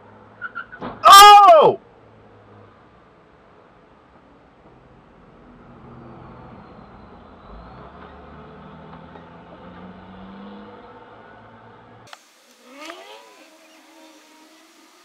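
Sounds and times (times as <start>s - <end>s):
vehicles passing: 0.0s - 15.0s
engine accelerating: 5.4s - 14.5s.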